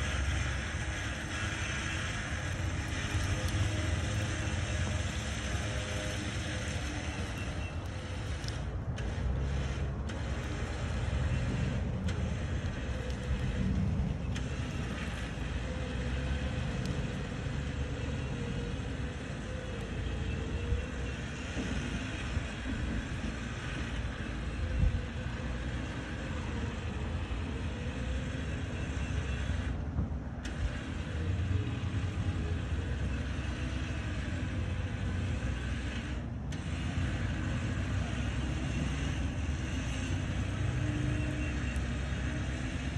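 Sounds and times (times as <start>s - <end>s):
truck engine low rumble: 0.0s - 42.9s.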